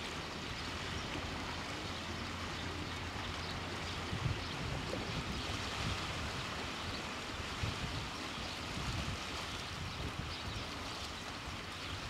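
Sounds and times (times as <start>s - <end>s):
small waves on shore: 0.0s - 12.0s
wind buffeting microphone: 3.8s - 12.0s.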